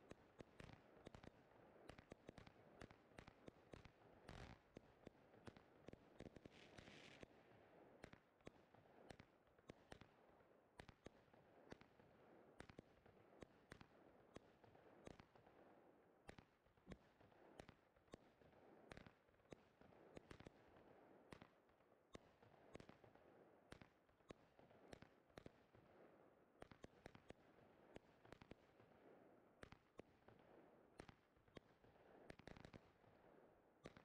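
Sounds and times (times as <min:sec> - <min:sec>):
faint steady background noise: 0:00.0 - 0:34.0
faint fireworks cracks: 0:26.6 - 0:33.2.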